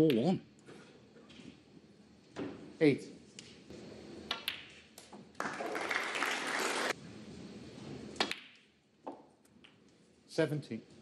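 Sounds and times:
snooker balls clicking: 0:04.2 - 0:05.3
audience applause: 0:05.4 - 0:07.0.

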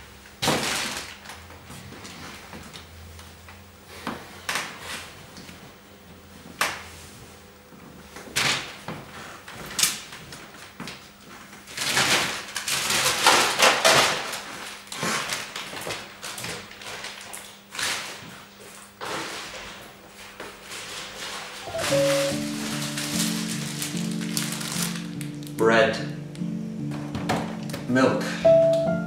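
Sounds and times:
plastic bag rustling: 0:00.4 - 0:02.7, 0:11.5 - 0:25.6.

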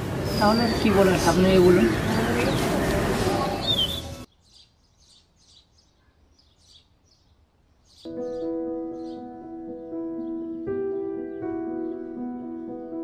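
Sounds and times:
roadside ambience: 0:00.0 - 0:08.1
birds chirping: 0:00.0 - 0:13.0
soft keyboard music: 0:08.1 - 0:13.0.

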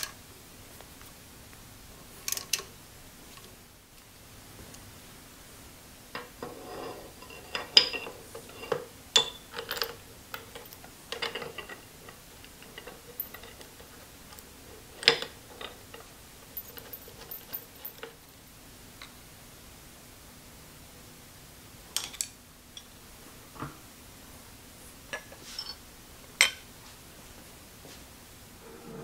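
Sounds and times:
tools clinking on metal table: 0:06.2 - 0:18.2.

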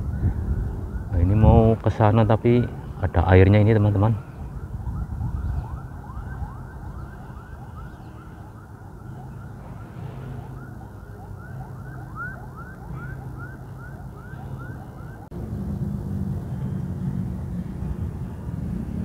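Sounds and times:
low rumble: 0:15.2 - 0:19.0.

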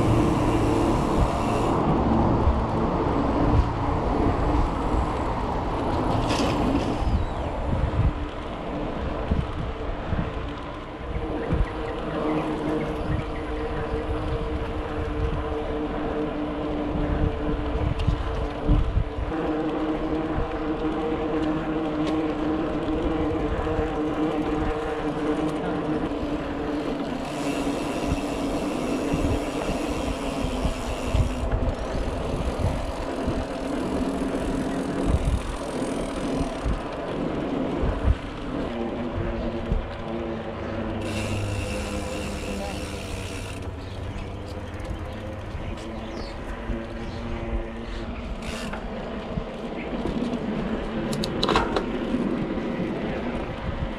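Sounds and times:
bicycle freehub ratchet buzzing: 0:00.0 - 0:02.2, 0:22.4 - 0:36.9, 0:40.6 - 0:46.3, 0:48.3 - 0:49.1
bike tyres humming on pavement: 0:00.0 - 0:53.9
wind buffeting microphone: 0:00.0 - 0:53.9.

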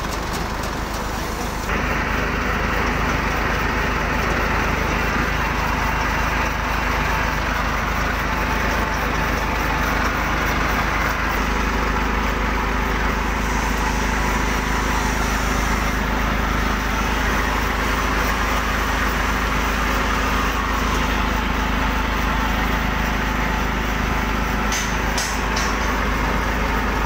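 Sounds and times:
belt-driven machine humming: 0:00.0 - 0:27.0.

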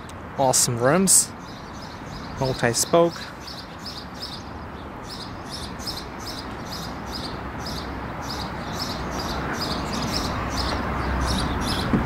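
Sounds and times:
bird chirping: 0:01.3 - 0:12.0.

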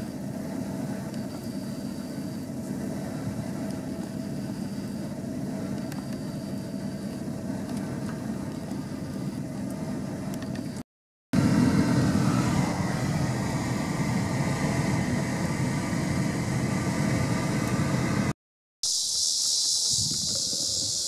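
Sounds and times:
high-pitched insect drone: 0:00.0 - 0:10.8, 0:18.8 - 0:21.0
steady low rumble: 0:00.0 - 0:10.8.

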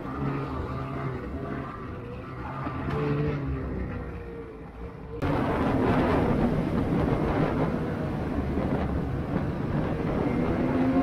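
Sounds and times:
steady rush of noise: 0:05.2 - 0:10.6.

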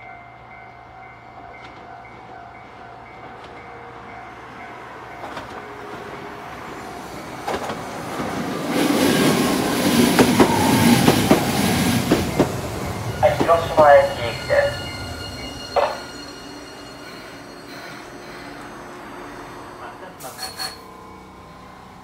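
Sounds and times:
tram rolling past: 0:00.0 - 0:22.0
chiming signal tone: 0:12.3 - 0:21.8.

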